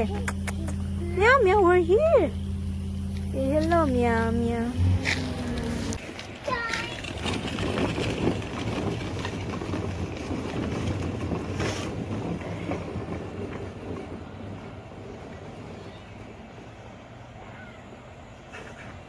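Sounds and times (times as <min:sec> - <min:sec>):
plastic wheels rolling over gravel: 0:03.4 - 0:14.5.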